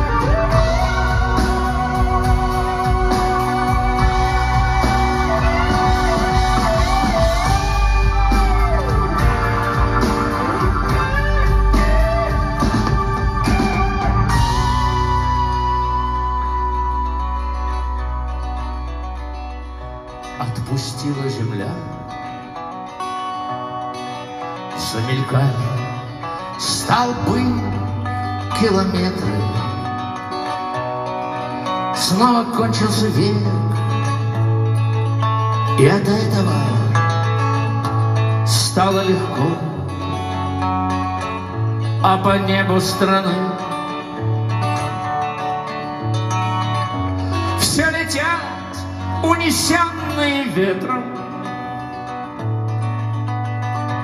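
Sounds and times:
held electric guitar notes: 0.0 - 20.4
sustained keyboard chords: 0.0 - 20.4
bass: 0.0 - 23.0, 23.6 - 54.0
keyboard notes: 0.0 - 54.0
lead electric guitar melody: 0.0 - 54.0.

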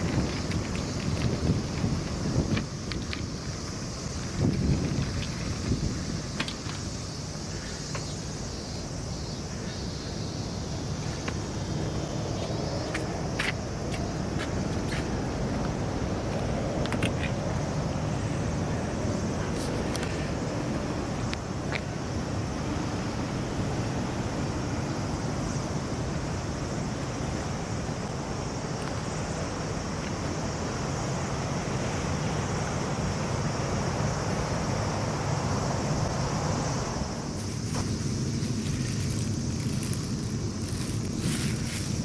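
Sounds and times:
wind buffeting microphone: 0.0 - 9.2
sea water against seawall: 0.0 - 42.0.

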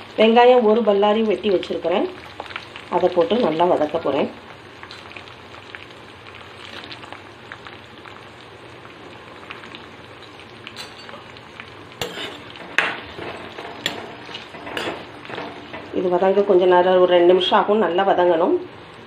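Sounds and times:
onions sizzling in hot oil: 0.0 - 19.0
metal spatula knocking on pan: 12.0 - 16.0.

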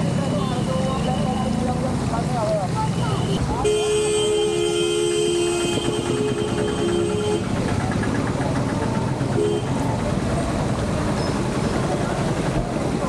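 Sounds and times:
motor scooter engines passing: 0.0 - 13.0
people talking on street: 0.0 - 13.0
vehicle horn: 3.2 - 7.6, 9.4 - 9.8.

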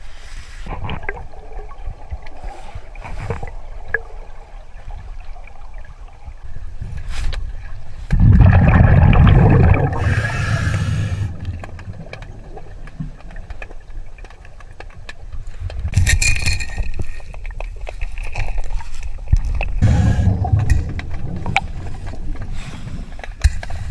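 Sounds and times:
exhaled bubbles rumbling underwater: 0.7 - 16.0, 19.4 - 23.2
scuba regulator inhalation hiss: 10.0 - 11.4.

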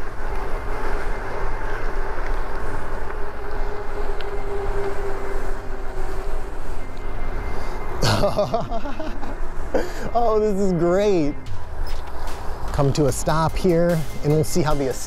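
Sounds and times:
thin electric motor whine: 0.0 - 12.8
tyres rolling on road: 0.0 - 15.0.

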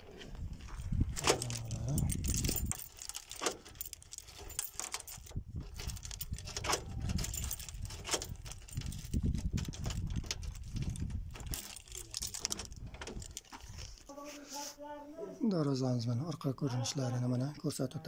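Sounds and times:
keys jangling: 0.6 - 14.1
lock clicking: 1.1 - 13.5.

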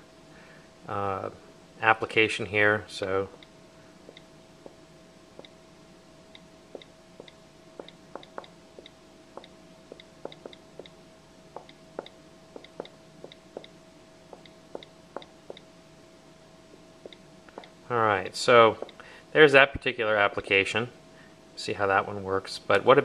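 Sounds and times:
faint steady hum: 0.0 - 23.0
stylus tapping on glass: 9.4 - 10.9.

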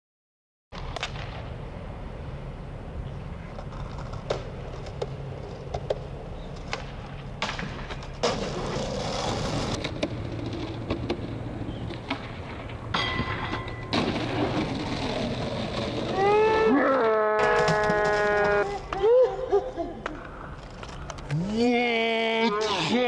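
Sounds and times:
skateboard wheels rolling on concrete: 0.7 - 21.5
skateboard clacks: 3.5 - 16.5
skateboard grinding on handrail: 7.4 - 12.8, 13.4 - 18.9.

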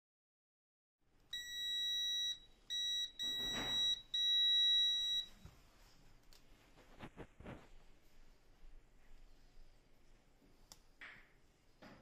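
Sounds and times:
multimeter beeps: 1.3 - 5.5.

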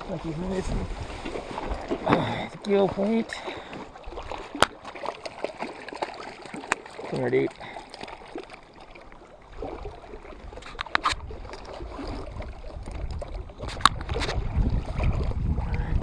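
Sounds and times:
wind buffeting the microphone: 0.0 - 3.4, 9.5 - 16.0
water lapping against rocks: 0.0 - 16.0.

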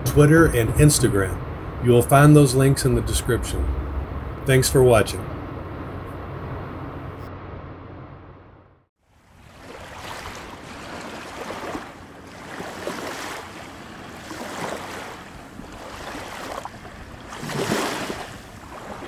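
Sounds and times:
small waves splashing against rocks: 9.3 - 19.0.

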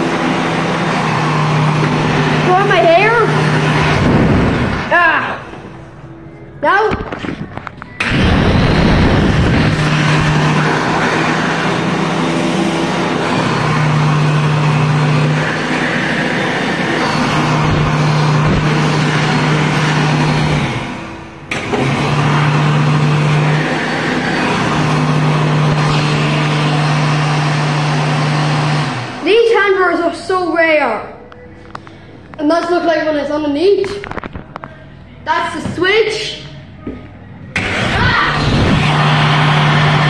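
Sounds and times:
hand dryer running: 0.0 - 5.8, 8.0 - 29.5, 37.6 - 40.0.

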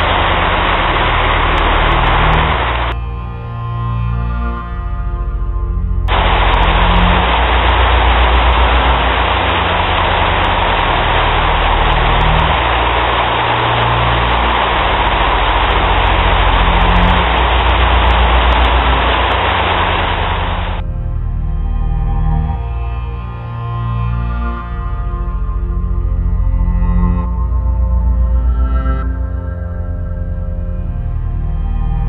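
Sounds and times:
heavy rain pouring: 0.0 - 3.0, 6.1 - 20.8
low drone: 0.0 - 32.0.

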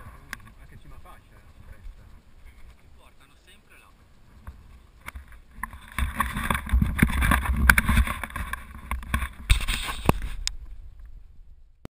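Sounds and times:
wind on microphone: 3.9 - 11.8
hand rubbing camera housing: 4.3 - 10.6
sharp knocks and clicks: 4.4 - 11.1.

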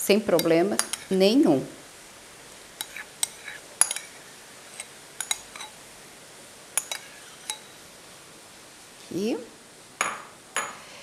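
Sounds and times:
metal spoon clinking glass bowl: 0.4 - 1.2, 2.8 - 4.2, 4.8 - 5.8, 6.8 - 7.7, 10.0 - 10.8.

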